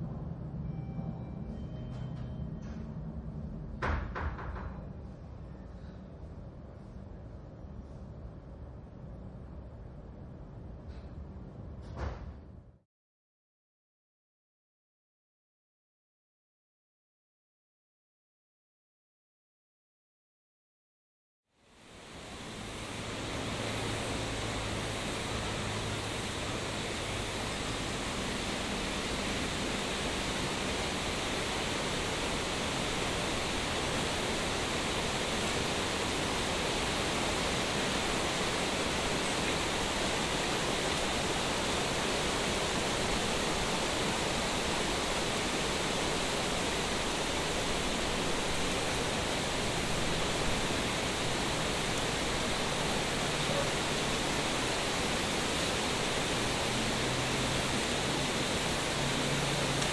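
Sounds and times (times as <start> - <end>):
steady rushing noise: 21.6 - 59.9.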